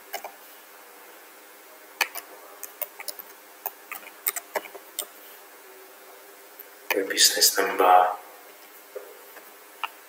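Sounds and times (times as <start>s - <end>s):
computer keyboard typing: 0.1s - 0.3s, 2.0s - 5.1s.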